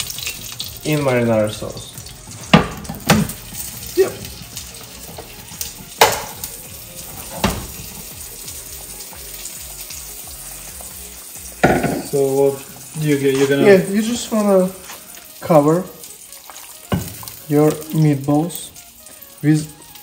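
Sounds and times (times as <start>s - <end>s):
frying pan sizzling: 0.0s - 20.0s
spoon and cookware knocking: 6.0s - 6.4s, 11.6s - 12.1s, 16.9s - 17.3s.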